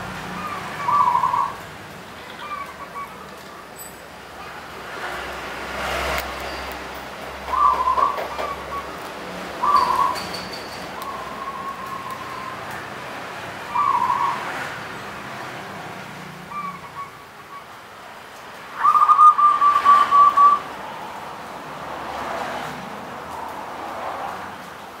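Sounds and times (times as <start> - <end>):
dove cooing: 0.4 - 1.6, 7.5 - 8.9, 9.6 - 12.6, 13.7 - 14.5, 18.8 - 20.6.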